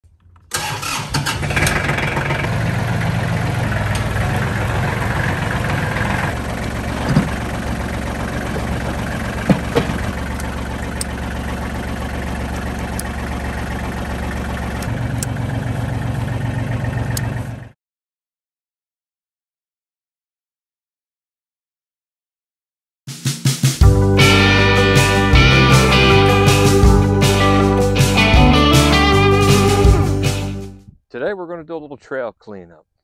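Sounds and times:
tractor diesel engine idling: 0.5s - 17.7s.

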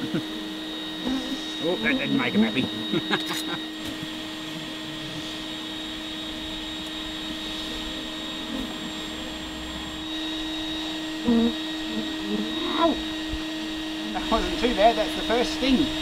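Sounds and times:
vacuum motor humming with whine: 0.0s - 16.0s.

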